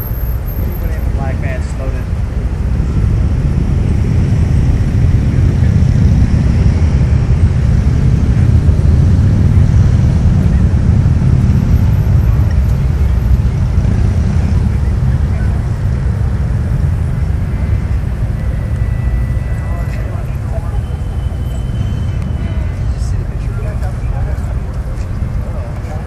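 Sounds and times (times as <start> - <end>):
vehicles driving past rumbling: 0.0 - 26.0.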